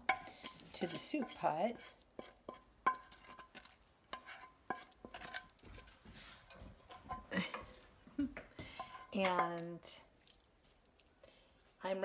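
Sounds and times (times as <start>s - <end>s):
vegetables scraping and sliding: 0.1s - 8.0s.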